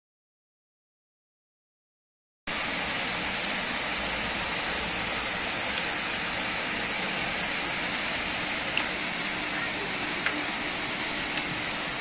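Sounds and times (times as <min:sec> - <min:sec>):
heavy rain pouring: 0:02.5 - 0:12.0.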